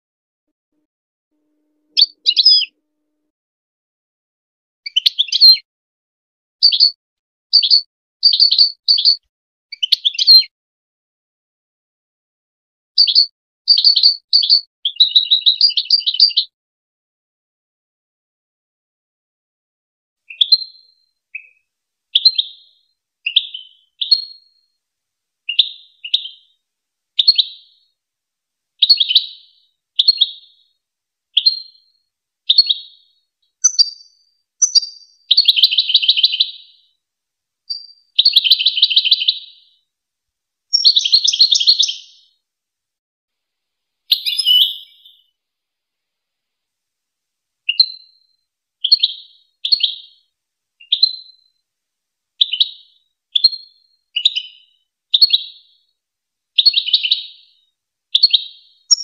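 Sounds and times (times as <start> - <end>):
bird chirping and trilling: 1.8 - 2.8, 4.9 - 5.6, 6.6 - 10.5, 13.0 - 16.5, 20.3 - 21.6, 22.2 - 24.5, 25.5 - 26.5, 33.6 - 36.7, 40.8 - 42.3, 44.1 - 45.2, 54.2 - 55.6, 58.2 - 59.0.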